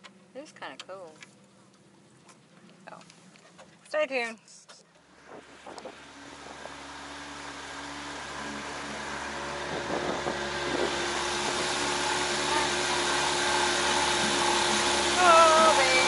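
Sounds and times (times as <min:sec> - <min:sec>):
outboard motor running: 0:05.0 - 0:16.0
water rushing past hull: 0:05.0 - 0:16.0.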